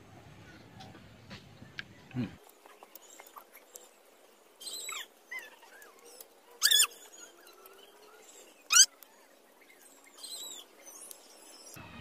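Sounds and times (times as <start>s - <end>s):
faint chirps: 1.9s - 12.0s
high-pitched animal calls: 6.6s - 7.4s, 8.7s - 9.0s.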